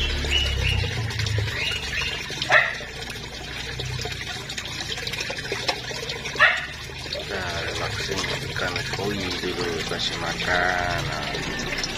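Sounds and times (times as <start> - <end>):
fish splashing at water surface: 0.0 - 11.9
steady wash of water: 0.0 - 11.9
dog barking: 2.4 - 2.9, 6.4 - 6.8.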